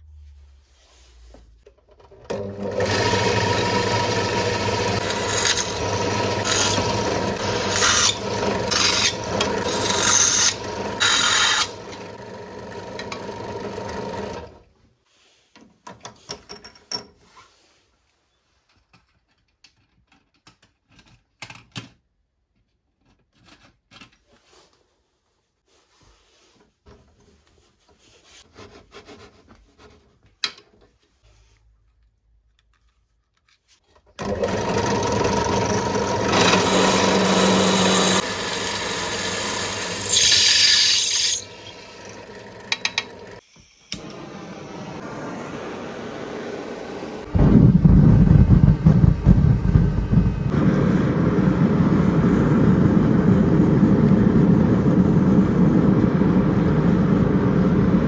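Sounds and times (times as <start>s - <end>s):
drill press cutting steel: 2.3s - 14.6s, 34.2s - 45.1s.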